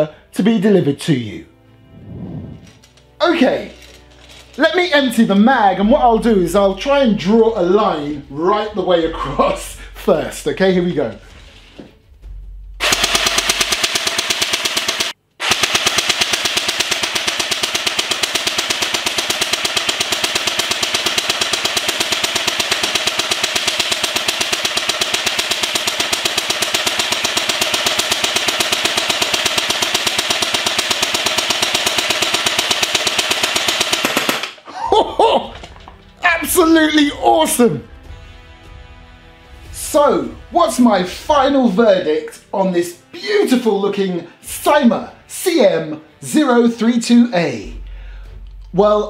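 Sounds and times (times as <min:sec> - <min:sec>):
airsoft gun firing full auto: 0:12.8 - 0:34.6.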